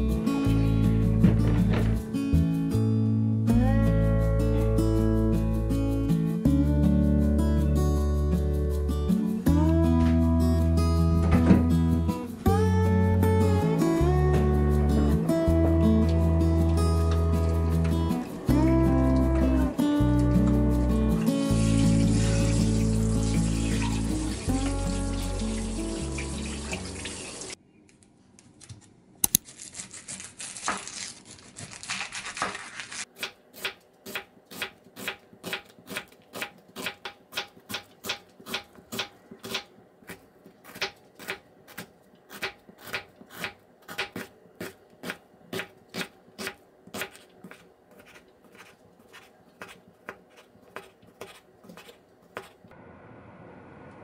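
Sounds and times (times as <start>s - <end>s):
music: 0.0s - 27.6s
running tap water: 21.4s - 27.6s
knife chopping on wooden board: 33.2s - 52.6s.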